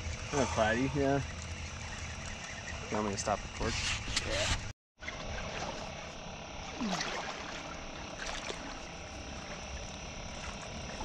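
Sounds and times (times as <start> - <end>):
outdoor background hiss: 0.0 - 11.0
water lapping: 5.0 - 11.0.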